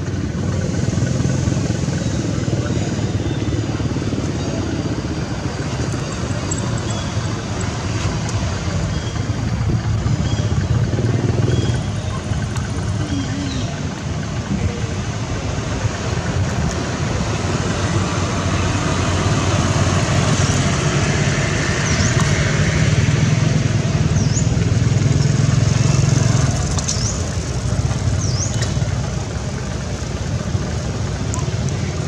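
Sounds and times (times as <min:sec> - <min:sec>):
steady noisy background: 0:00.0 - 0:32.0
vehicle engine passing: 0:00.0 - 0:32.0.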